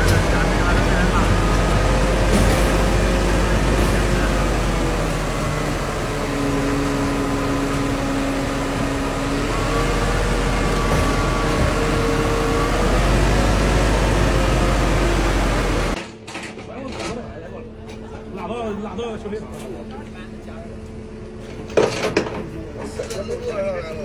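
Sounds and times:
crane whining tones: 0.0 - 16.0
diesel engine running: 0.0 - 16.3, 17.2 - 24.0.

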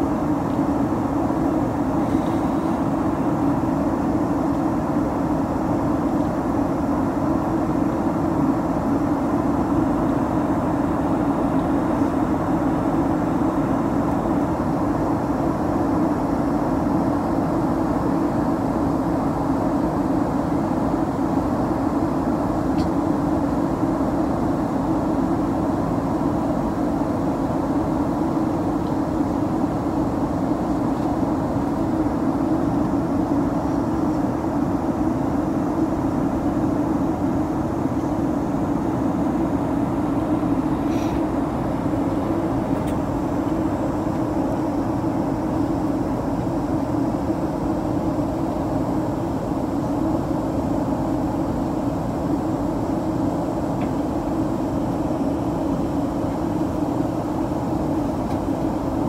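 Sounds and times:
constant low hum: 0.0 - 59.0
engine and airflow rush: 0.0 - 59.0.

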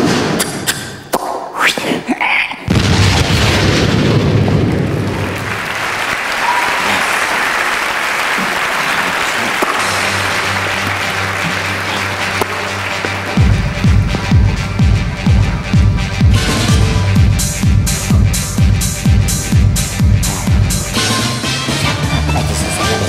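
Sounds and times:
audience applauding: 4.6 - 16.5.

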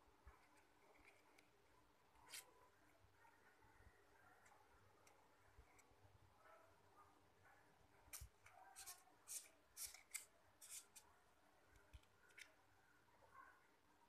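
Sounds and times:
paper flower rustling: 0.3 - 2.7, 8.0 - 11.1.

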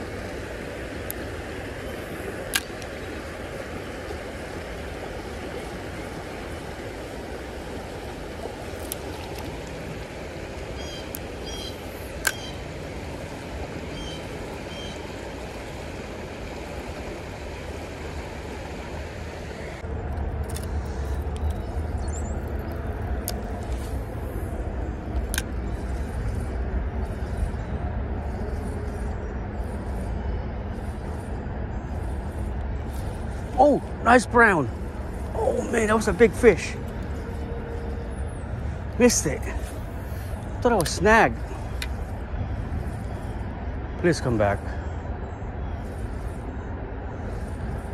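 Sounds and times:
creek rushing: 0.0 - 27.3, 30.5 - 45.2
bird chirps: 10.8 - 12.6.

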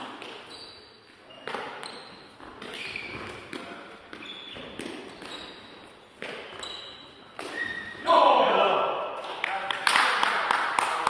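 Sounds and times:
shoe squeaks on floor: 0.0 - 8.1.

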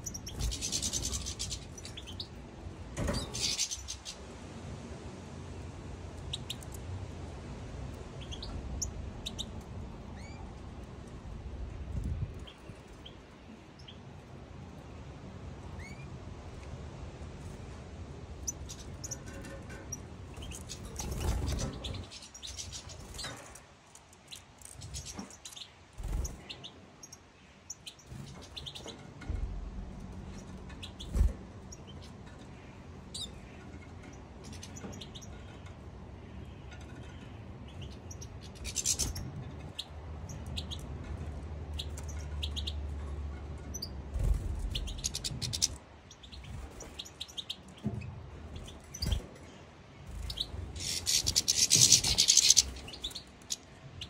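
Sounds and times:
finches chirping: 0.0 - 2.4, 3.1 - 4.2, 20.3 - 23.4, 36.7 - 40.8, 43.7 - 47.8, 48.5 - 54.0
rumble: 4.1 - 14.8, 28.0 - 38.0, 39.0 - 47.1.

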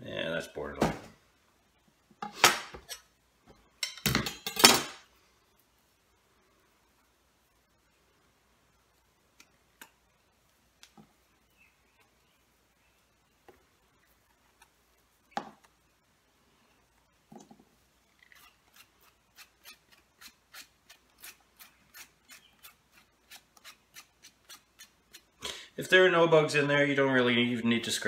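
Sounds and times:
knife scraping mushroom: 18.2 - 25.4.

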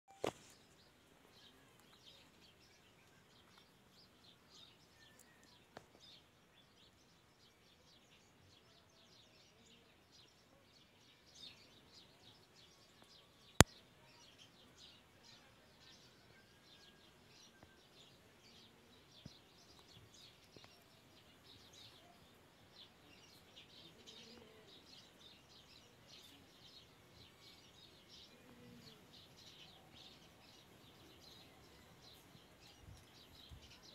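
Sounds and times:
birds chirping: 16.0 - 33.9.

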